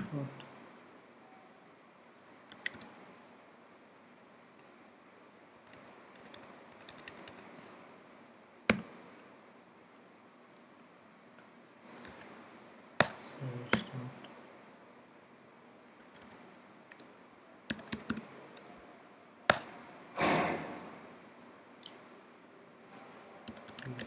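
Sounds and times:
keyboard typing: 0:02.5 - 0:03.0, 0:05.6 - 0:07.5, 0:15.9 - 0:17.1, 0:17.7 - 0:18.7, 0:19.5 - 0:19.7, 0:23.4 - 0:24.0.

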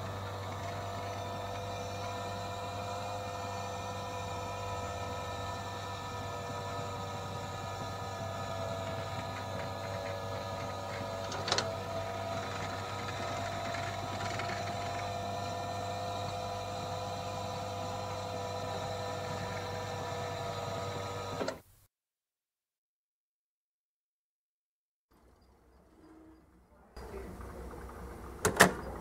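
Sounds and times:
jukebox motor hum and whir: 0:00.0 - 0:21.6, 0:25.2 - 0:29.0.

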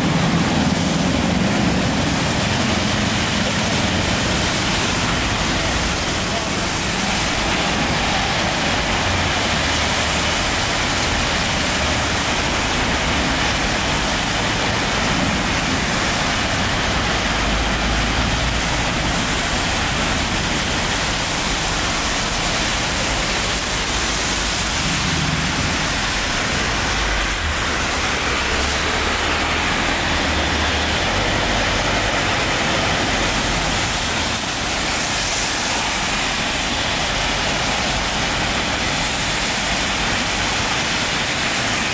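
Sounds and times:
passing vehicle engines rumbling: 0:00.0 - 0:41.9
rain and tyres hissing: 0:00.0 - 0:41.9.

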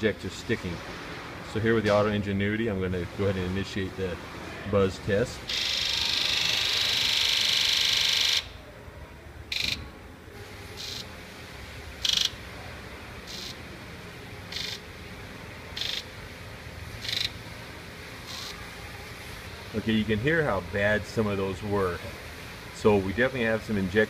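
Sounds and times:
fuel injectors buzzing: 0:05.4 - 0:08.6, 0:09.5 - 0:09.9, 0:10.7 - 0:11.1, 0:13.2 - 0:13.8, 0:14.4 - 0:16.2, 0:16.8 - 0:19.0.

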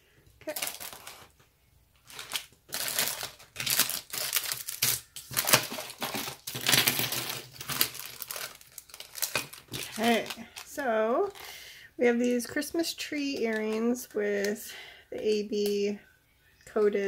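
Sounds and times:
plastic bags and cardboard crinkling: 0:00.4 - 0:01.4, 0:02.0 - 0:11.6.

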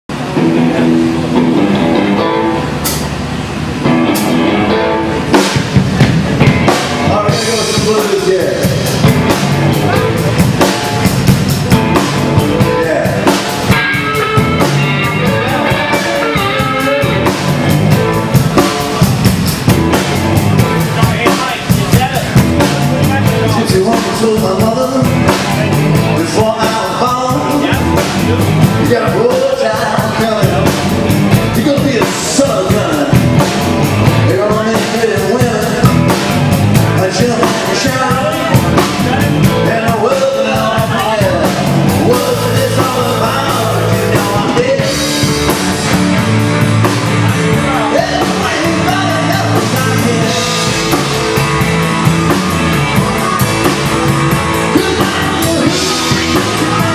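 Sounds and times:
drum kit: 0:00.1 - 0:56.9
electric guitars: 0:00.1 - 0:56.9
person singing lead vocal: 0:07.0 - 0:08.8, 0:23.2 - 0:30.9, 0:31.5 - 0:33.5, 0:34.1 - 0:46.0, 0:47.5 - 0:51.4, 0:54.5 - 0:56.9.

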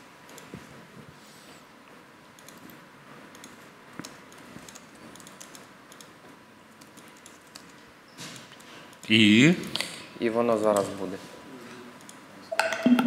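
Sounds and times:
typing on a computer keyboard: 0:02.4 - 0:06.2, 0:06.8 - 0:07.8.

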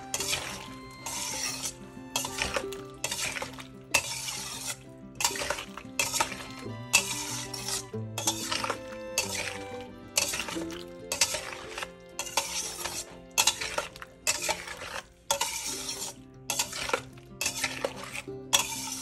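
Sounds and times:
spatula scraping steel pan: 0:00.0 - 0:19.0.

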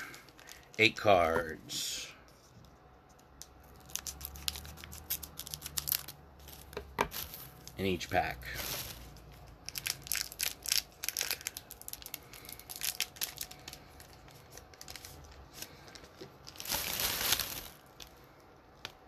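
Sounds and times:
card pack wrapper crinkling: 0:03.4 - 0:18.2
wrapper tearing: 0:03.6 - 0:07.8, 0:08.5 - 0:18.1.

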